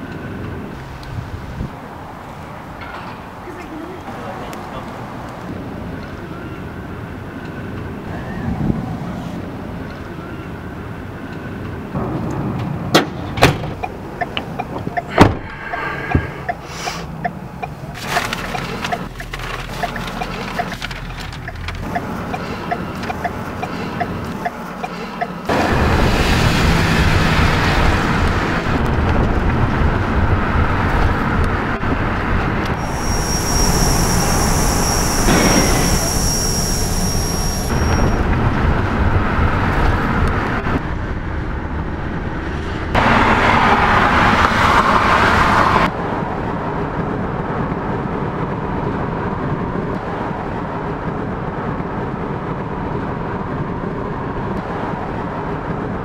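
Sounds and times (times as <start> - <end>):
vehicle and traffic noise: 0.0 - 56.0
steady high tone: 32.7 - 38.4.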